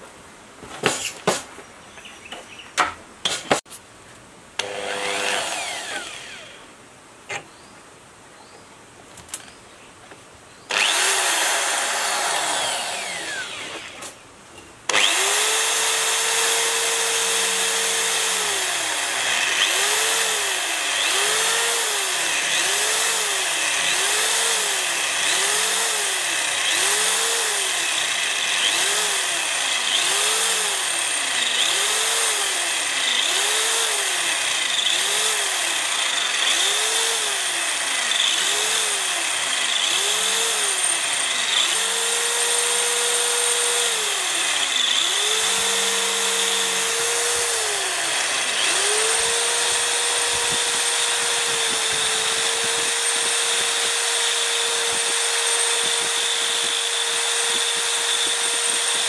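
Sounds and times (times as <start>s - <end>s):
drill bit cutting metal: 4.6s - 6.4s, 14.9s - 59.0s
electric drill motor: 4.6s - 6.7s, 10.7s - 14.2s, 14.9s - 59.0s.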